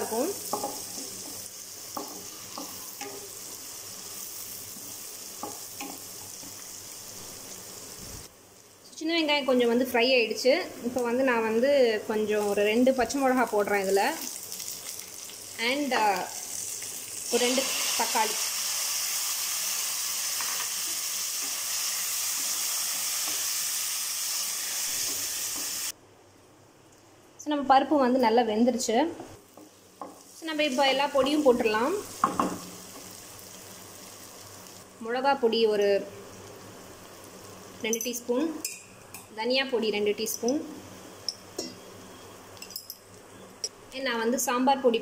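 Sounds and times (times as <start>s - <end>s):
shallots sizzling in oil: 0.0s - 26.0s, 29.4s - 38.8s.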